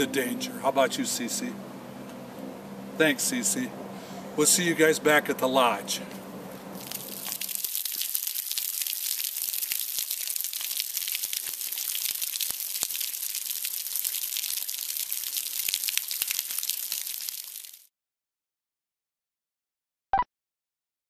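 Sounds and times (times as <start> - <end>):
small waterfall splashing: 6.8 - 17.9.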